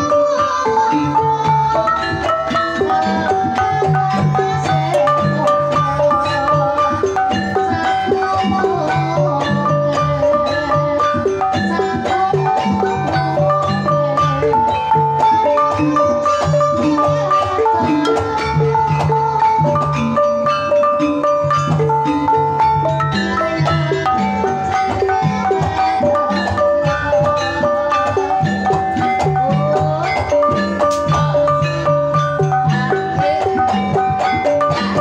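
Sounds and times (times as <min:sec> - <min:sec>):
gamelan playing: 0:00.0 - 0:35.0.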